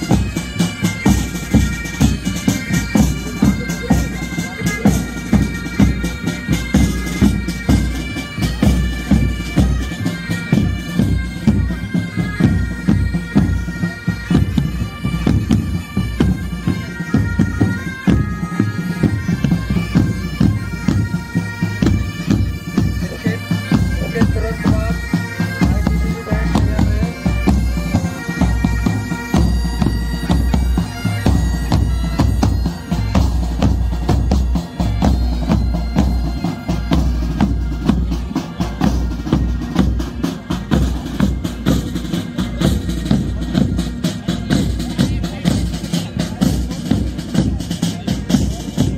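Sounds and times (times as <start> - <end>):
bagpipes playing melody: 0.0 - 48.9
snare and bass drums: 0.0 - 48.9.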